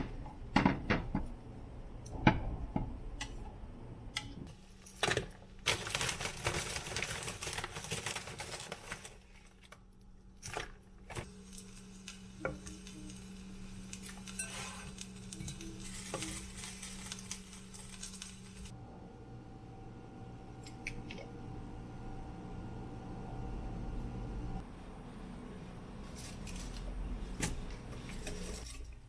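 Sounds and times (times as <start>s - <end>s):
steady low hum: 9.9s - 28.5s
vegetables sizzling: 11.1s - 18.7s
chopsticks scraping a pan: 13.9s - 18.5s.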